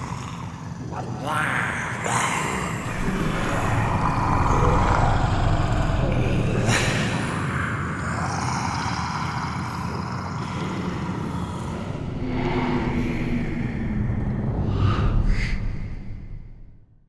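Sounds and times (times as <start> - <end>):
creature growls: 0.0 - 13.6
low rumble: 1.8 - 8.4, 11.4 - 17.0.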